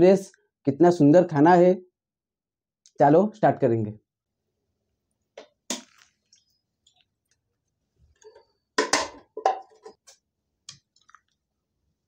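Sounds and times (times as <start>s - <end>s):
dishes clicking and knocking: 8.2s - 10.2s.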